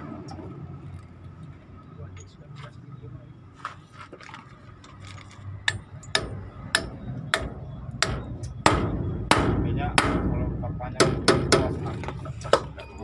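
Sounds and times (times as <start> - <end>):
hammer striking steel: 5.7 - 12.7.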